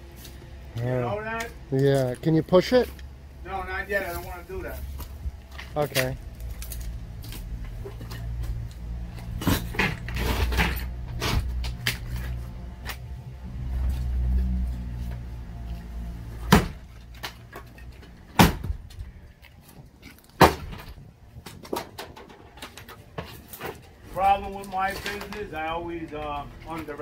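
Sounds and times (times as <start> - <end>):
low engine rumble: 0.0 - 20.0
knocks and creaks: 4.2 - 27.0.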